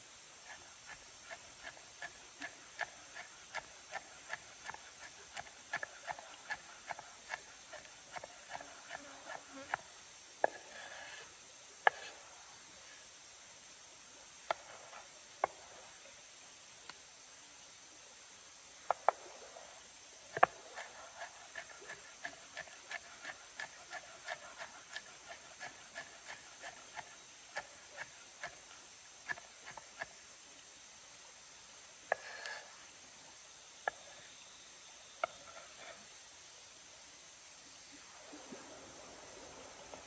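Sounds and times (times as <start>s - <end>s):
insect hiss: 0.0s - 40.0s
knife chopping on wooden board: 20.4s - 28.6s.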